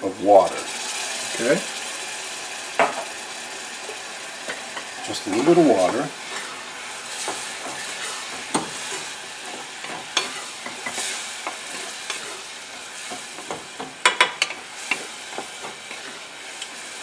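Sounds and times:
apples sizzling in a saucepan: 0:00.0 - 0:17.0
wooden spoon scraping a pan: 0:03.8 - 0:16.5.

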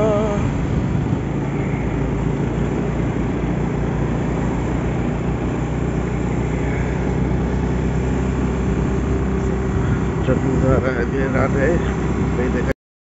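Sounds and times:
wind on microphone: 0:00.0 - 0:03.6
motorcycle engine running: 0:00.0 - 0:12.7.

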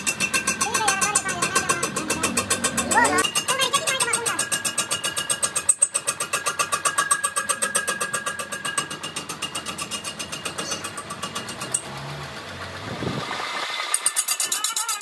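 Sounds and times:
lathe tool scraping spinning rim: 0:00.0 - 0:15.0.

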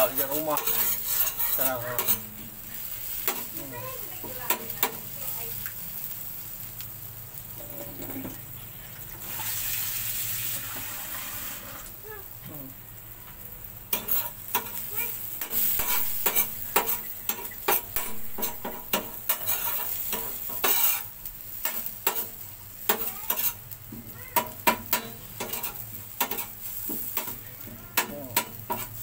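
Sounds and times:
metal spoon scraping griddle: 0:00.0 - 0:05.1, 0:07.5 - 0:08.4, 0:09.0 - 0:11.9, 0:13.9 - 0:23.7, 0:24.4 - 0:29.0
paste sizzling in oil: 0:00.0 - 0:29.0.

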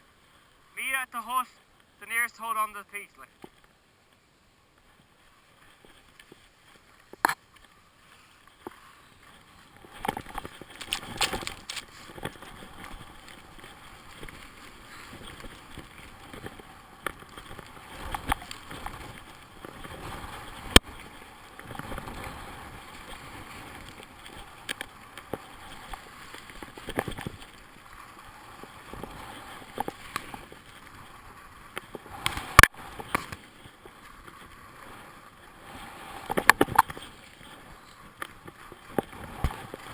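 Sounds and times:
skis scraping over snow: 0:00.0 - 0:39.9.

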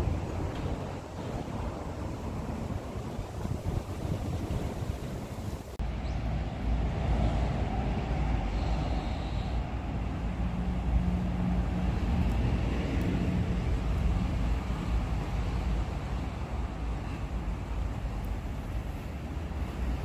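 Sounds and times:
wind buffeting microphone: 0:00.0 - 0:08.9.

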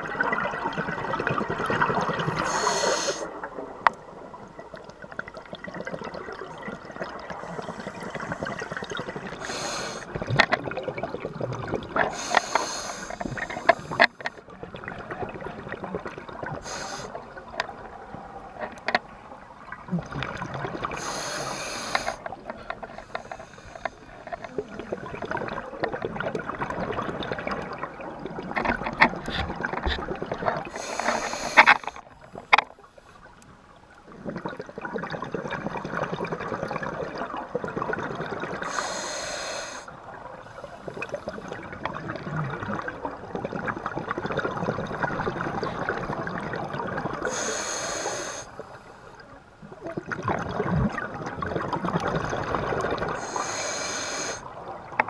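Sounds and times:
exhaled bubbles underwater: 0:00.0 - 0:32.0, 0:34.0 - 0:55.0
hissing regulator breaths: 0:02.4 - 0:03.3, 0:07.4 - 0:10.1, 0:12.1 - 0:14.3, 0:16.6 - 0:17.1, 0:21.0 - 0:22.3, 0:23.0 - 0:24.0, 0:30.7 - 0:32.0, 0:38.6 - 0:39.9, 0:47.3 - 0:49.2, 0:53.2 - 0:54.4.

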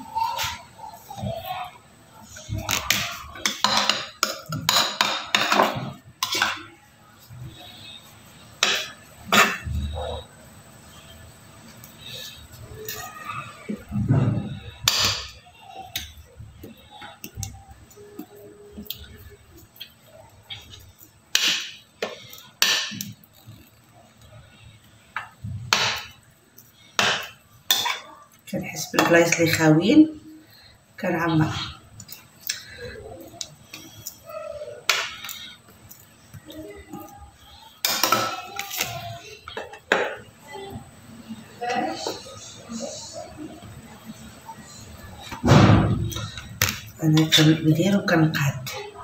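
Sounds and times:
metal spatula scraping and tapping: 0:02.7 - 0:06.7, 0:08.6 - 0:09.7, 0:25.2 - 0:28.1, 0:37.8 - 0:40.1.

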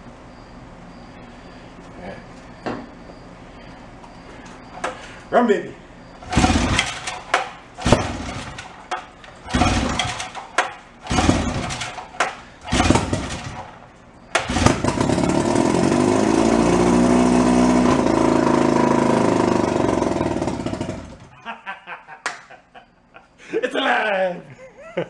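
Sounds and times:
outboard motor running: 0:06.2 - 0:08.7, 0:09.4 - 0:10.4, 0:11.1 - 0:12.0, 0:12.7 - 0:13.6, 0:14.4 - 0:21.3
starter rope pulls: 0:06.2 - 0:21.3.

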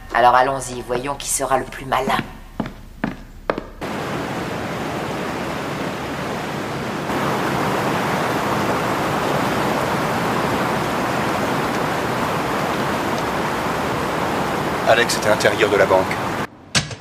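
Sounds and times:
water rushing over cascade: 0:03.8 - 0:16.5.

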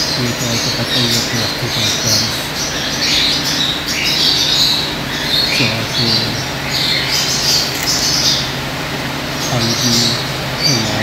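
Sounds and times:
parrots squawking: 0:00.0 - 0:08.8.

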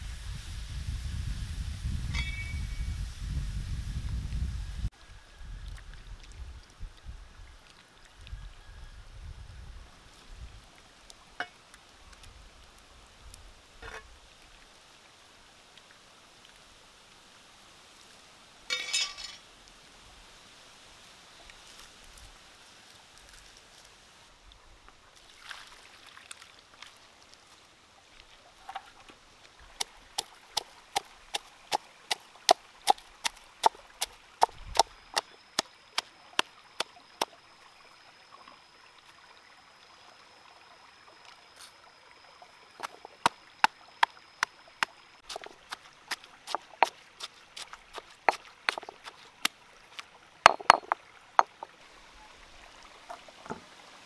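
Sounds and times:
stone pestle pounding in mortar: 0:48.7 - 0:49.2, 0:50.5 - 0:51.6.

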